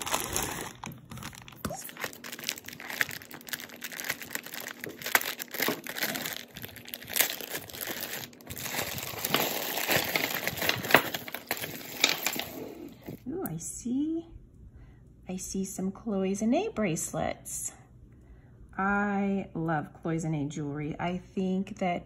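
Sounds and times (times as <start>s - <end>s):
plastic bag crinkling: 0.0s - 13.2s.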